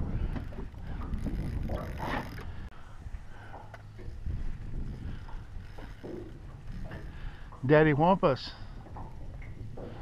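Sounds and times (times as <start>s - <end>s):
fishing reel whirring and clicking: 0.1s - 2.6s.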